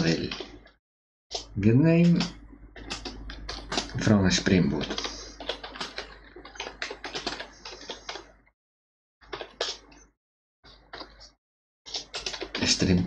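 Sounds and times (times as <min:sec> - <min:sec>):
typing on a computer keyboard: 0:02.1 - 0:08.3, 0:09.2 - 0:09.9, 0:11.9 - 0:13.0.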